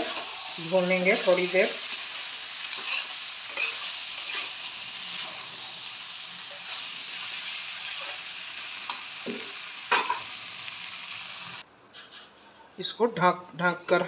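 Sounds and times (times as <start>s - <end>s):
chicken sizzling in a pan: 0.0s - 11.6s
spatula scraping a pan: 2.6s - 5.6s.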